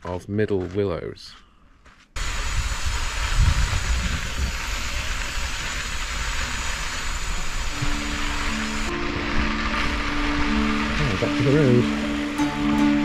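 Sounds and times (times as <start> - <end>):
bicycle tyres on dirt road: 1.8 - 13.0
wind rushing over microphone: 2.2 - 5.9
steady musical tones: 7.6 - 13.0.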